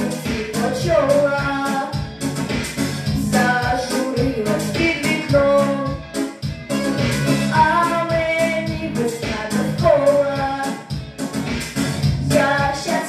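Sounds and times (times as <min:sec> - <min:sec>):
girl singing into a microphone: 0:00.0 - 0:02.1, 0:03.2 - 0:06.0, 0:07.5 - 0:10.9, 0:12.2 - 0:13.0
instrumental accompaniment: 0:00.0 - 0:13.0.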